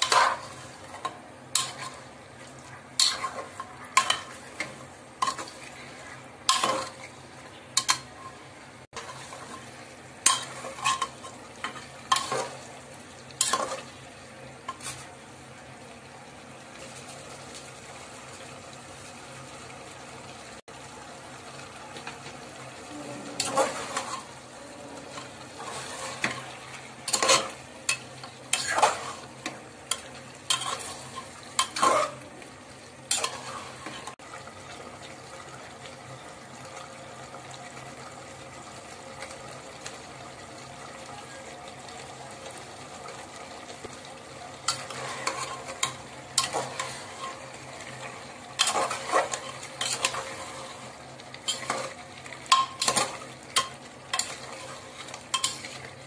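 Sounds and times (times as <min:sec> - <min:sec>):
meat sizzling in a pot: 0:00.0 - 0:56.0
metal spoon clinking and scraping: 0:29.9 - 0:32.2, 0:48.6 - 0:50.3, 0:51.4 - 0:54.7, 0:55.3 - 0:55.9.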